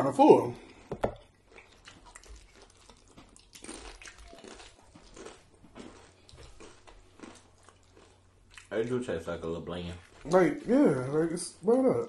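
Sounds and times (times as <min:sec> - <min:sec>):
chewing crunchy chips: 0:01.2 - 0:10.7.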